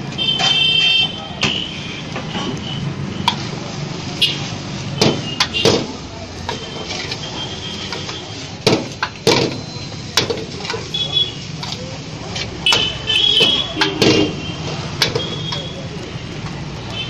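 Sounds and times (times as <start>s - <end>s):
roadside traffic hum: 0.0s - 17.0s
utensil clanking on a wok: 3.2s - 3.6s, 5.0s - 17.0s.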